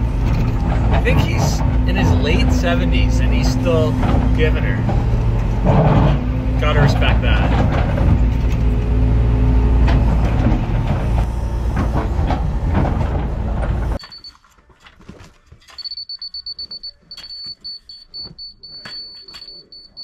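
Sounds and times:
truck engine and vacuum pump: 0:00.0 - 0:14.0
rapid high electronic beeps: 0:15.8 - 0:20.0.

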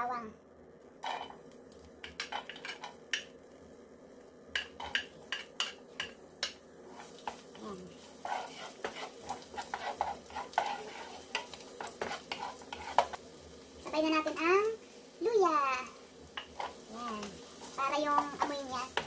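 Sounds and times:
garlic sizzling in hot oil: 0:00.1 - 0:19.0
wooden spoon scraping a pan: 0:01.0 - 0:03.3, 0:04.5 - 0:14.5, 0:16.2 - 0:19.0.

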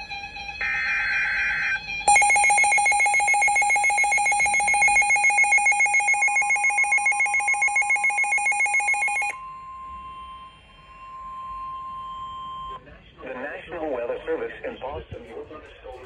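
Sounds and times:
pulsing electronic alarm tone: 0:00.0 - 0:12.8.

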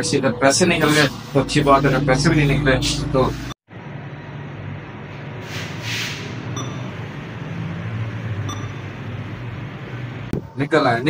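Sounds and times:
brief hiss: 0:05.4 - 0:06.4
atm short beeps: 0:06.5 - 0:07.0, 0:08.4 - 0:09.0.

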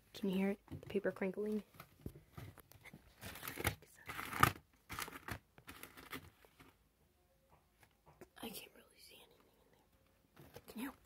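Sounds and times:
paper crinkling and rustling: 0:01.5 - 0:06.8.

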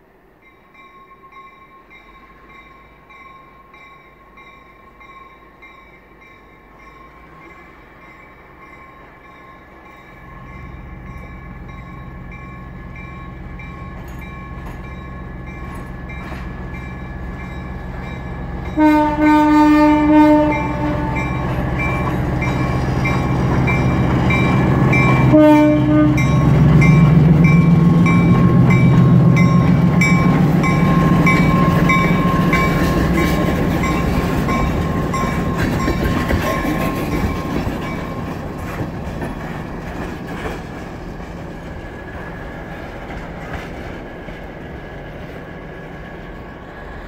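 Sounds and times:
diesel locomotive engine passing: 0:00.0 - 0:47.0
locomotive horn blast: 0:18.7 - 0:21.7, 0:25.1 - 0:26.7.

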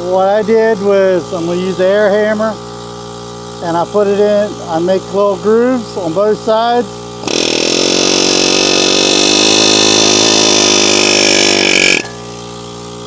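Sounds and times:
pneumatic air hammer on metal bolt: 0:07.2 - 0:12.5.

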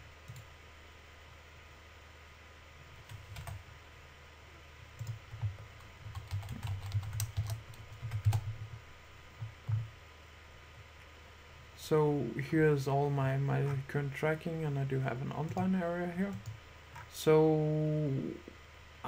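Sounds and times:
typing on computer keyboard: 0:03.1 - 0:03.6, 0:05.0 - 0:08.8.

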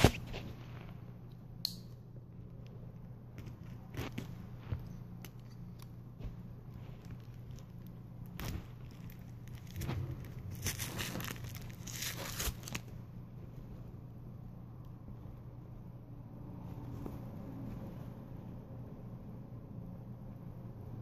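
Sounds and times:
packing tape ripping off cardboard: 0:08.3 - 0:12.9.

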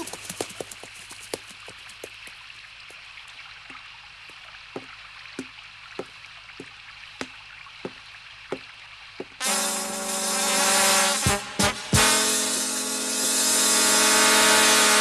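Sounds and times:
footsteps on wooden floor: 0:04.8 - 0:09.4.

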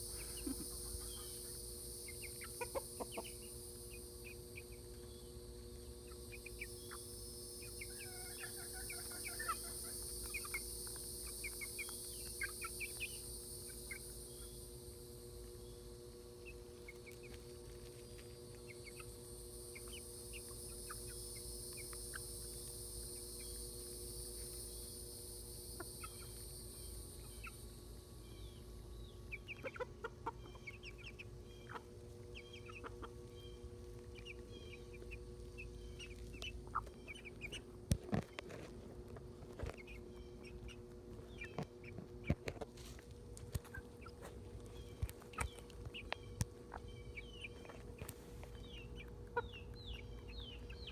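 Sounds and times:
steady high-pitched hiss: 0:00.0 - 0:29.8
chickens clucking and peeping: 0:00.0 - 0:50.9.

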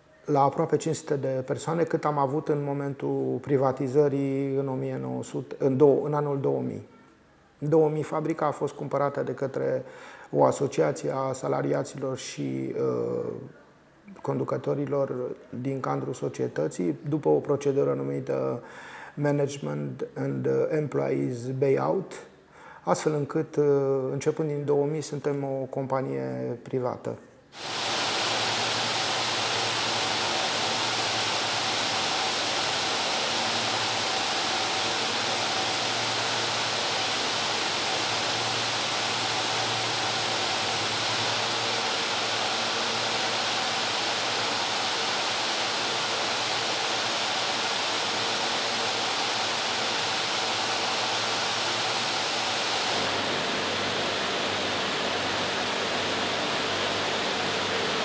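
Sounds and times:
machinery hums: 0:27.6 - 0:58.0
spinning machinery hiss: 0:27.6 - 0:58.0.

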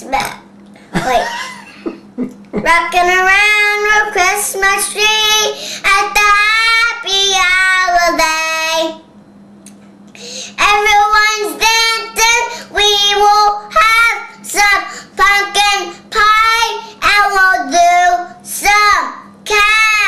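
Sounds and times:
boy singing unaccompanied: 0:10.6 - 0:20.0.

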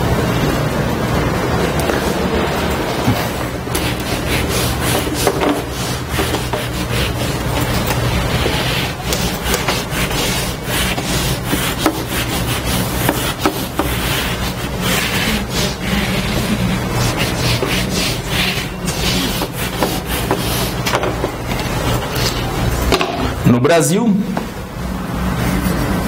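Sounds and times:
eraser rubbing on whiteboard: 0:03.1 - 0:22.6.

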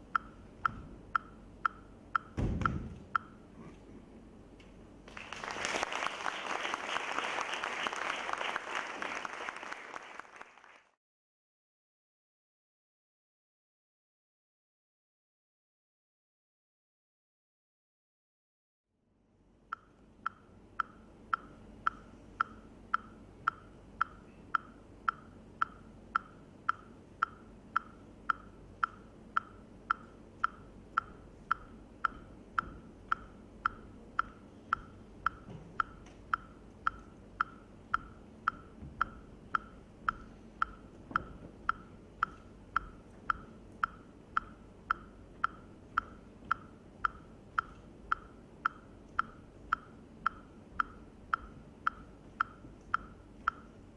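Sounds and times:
sharp pitched click beat: 0:19.8 - 0:53.8.

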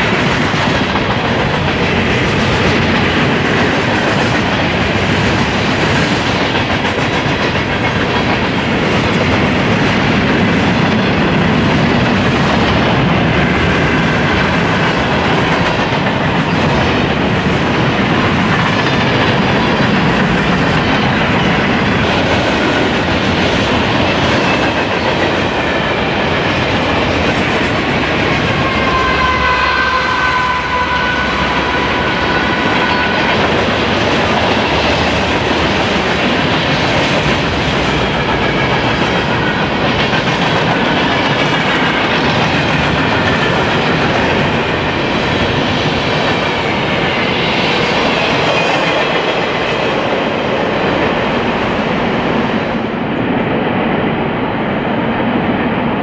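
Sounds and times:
train wheels rumbling and rattling: 0:00.0 - 0:56.0
high squealing tones: 0:28.6 - 0:33.9.

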